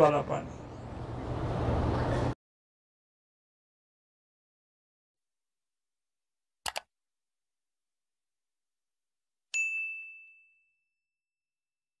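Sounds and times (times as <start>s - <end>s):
bell ding: 9.6s - 11.0s.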